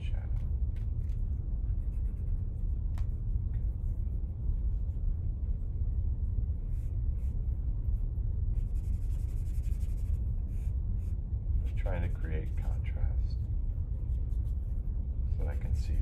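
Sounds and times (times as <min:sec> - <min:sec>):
steady low rumble: 0:00.0 - 0:16.0
charcoal scratching on paper: 0:01.0 - 0:03.1, 0:08.5 - 0:12.7, 0:13.8 - 0:14.8.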